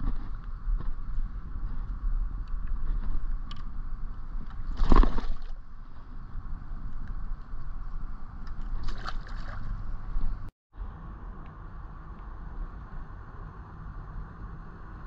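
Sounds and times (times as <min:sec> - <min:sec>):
wind rumbling on microphone: 0:00.0 - 0:15.0
water splash: 0:08.6 - 0:09.8.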